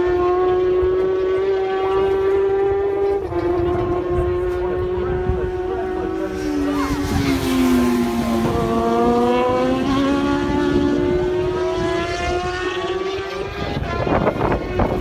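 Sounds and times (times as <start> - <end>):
motorcycles accelerating: 0.0 - 15.0.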